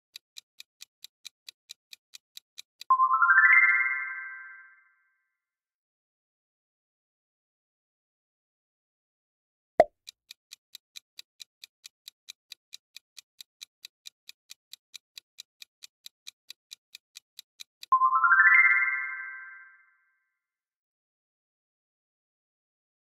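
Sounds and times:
clock-like ticking: 0:00.1 - 0:02.9, 0:09.8 - 0:18.0.

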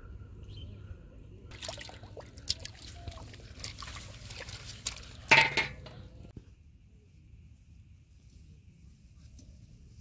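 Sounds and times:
fish thrashing and splashing: 0:01.5 - 0:05.3
plants rustling: 0:02.5 - 0:06.1.

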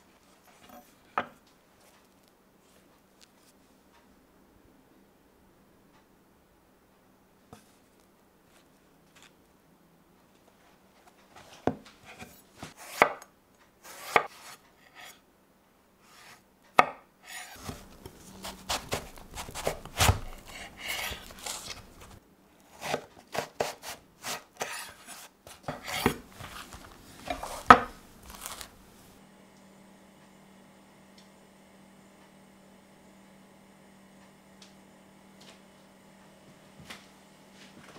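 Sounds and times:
knife cutting through aubergine: 0:13.8 - 0:15.2, 0:17.3 - 0:28.7
pieces rubbing on board: 0:23.6 - 0:28.7.

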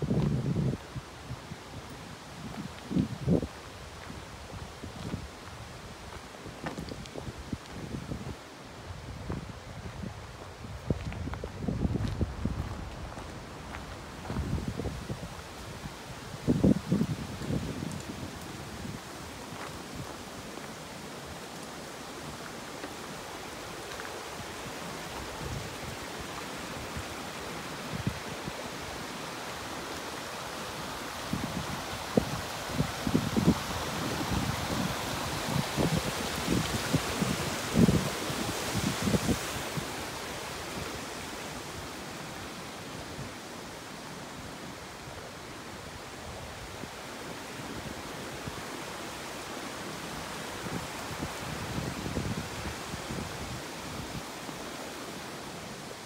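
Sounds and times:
water rushing over rocks: 0:15.2 - 0:56.0.

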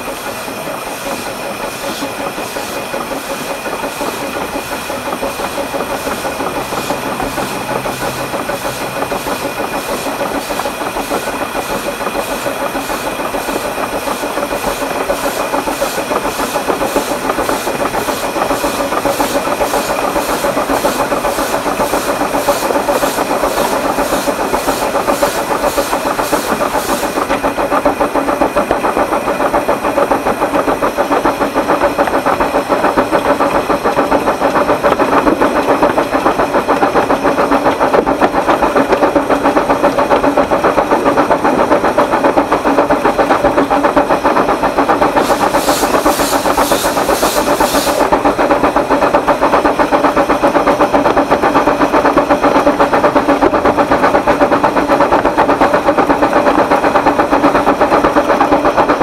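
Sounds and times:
steam hiss: 0:00.0 - 0:28.3, 0:44.7 - 0:48.6
steam locomotive exhaust chuffs: 0:00.0 - 0:59.0
train running noise: 0:00.0 - 0:59.0.

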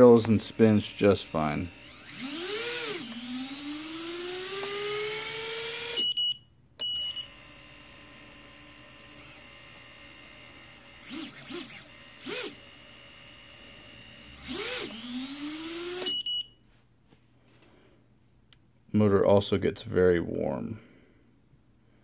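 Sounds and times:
electric motor whining: 0:00.0 - 0:06.0, 0:07.1 - 0:16.1
short high beeps: 0:16.1 - 0:16.6.

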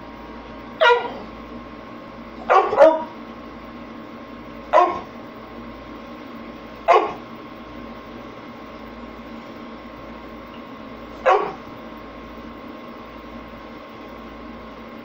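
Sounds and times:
dog barking: 0:00.8 - 0:01.3, 0:02.4 - 0:03.2, 0:04.7 - 0:05.1, 0:06.8 - 0:07.2, 0:11.2 - 0:11.7.

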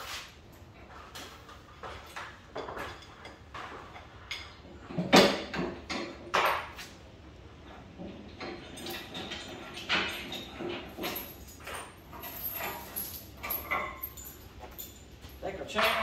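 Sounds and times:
metal knocks and clanks: 0:01.1 - 0:06.8, 0:07.7 - 0:16.0.

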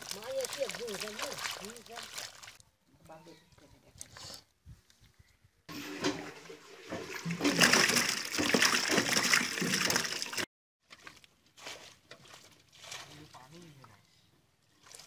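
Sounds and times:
water splashing into basin: 0:00.0 - 0:02.6, 0:05.7 - 0:10.5.

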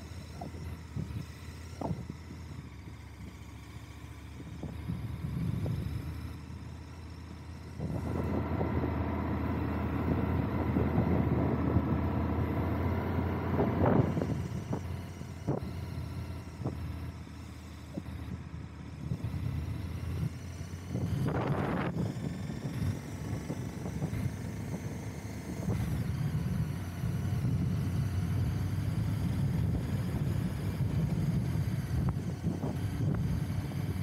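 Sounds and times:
motorcycle engine running: 0:00.0 - 0:34.0
wind noise: 0:13.5 - 0:15.8, 0:19.0 - 0:24.9, 0:25.5 - 0:34.0.

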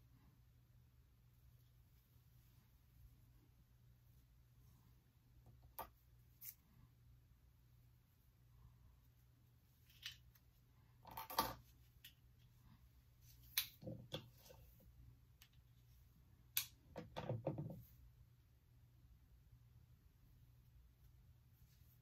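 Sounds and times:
low room hum: 0:00.0 - 0:22.0
soft rustles of hair: 0:01.3 - 0:11.0, 0:11.6 - 0:16.3, 0:20.1 - 0:22.0.

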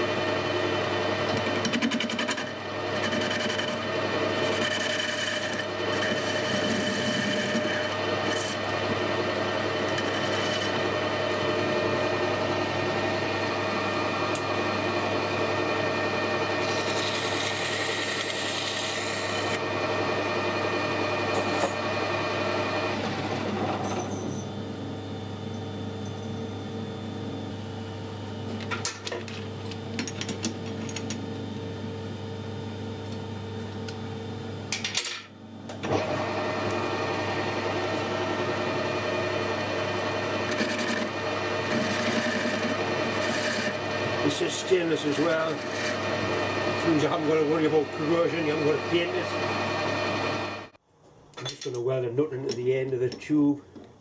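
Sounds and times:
metal lathe whining: 0:00.0 - 0:24.1, 0:35.7 - 0:50.8
tool cutting steel tube: 0:01.2 - 0:12.0, 0:15.8 - 0:19.7, 0:21.2 - 0:21.8, 0:35.8 - 0:50.5.

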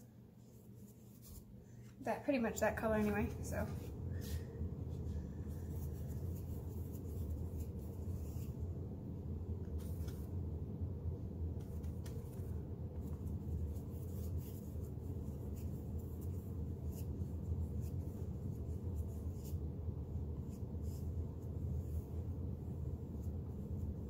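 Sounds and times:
low background hum: 0:00.0 - 0:24.0
paintbrush scratching on canvas: 0:05.5 - 0:08.6, 0:13.0 - 0:24.0.

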